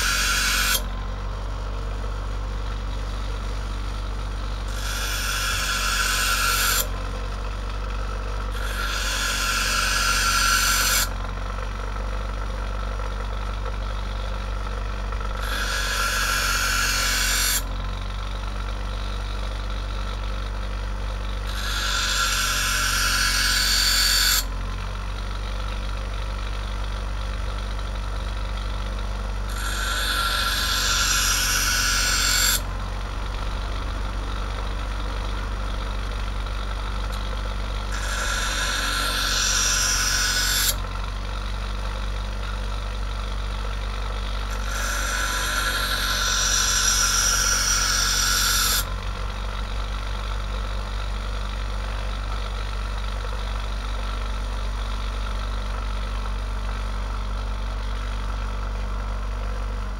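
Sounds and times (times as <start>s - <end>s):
knife blade grinding on wheel: 0.0s - 0.9s, 4.7s - 7.1s, 8.4s - 11.2s, 15.4s - 17.7s, 21.4s - 24.5s, 29.5s - 32.7s, 37.8s - 40.8s, 44.5s - 49.0s
bench grinder motor humming: 0.0s - 52.3s.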